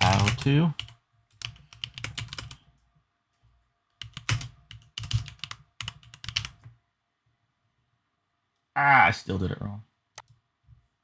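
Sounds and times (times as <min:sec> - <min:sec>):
mechanical keyboard typing: 0:00.0 - 0:02.6, 0:04.0 - 0:06.7.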